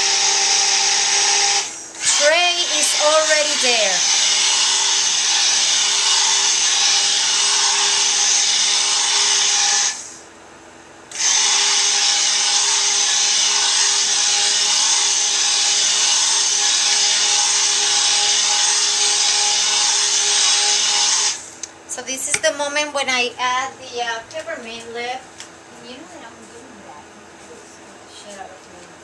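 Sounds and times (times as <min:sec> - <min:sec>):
stick blender running: 0:00.0 - 0:10.2, 0:11.1 - 0:21.7.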